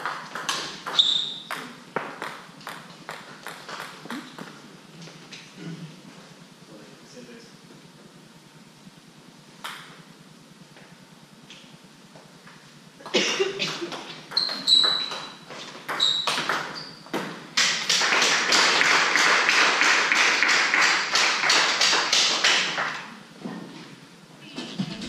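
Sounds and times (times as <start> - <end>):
sharp claps and taps: 17.6 - 23.1
spectators applauding: 17.6 - 23.1.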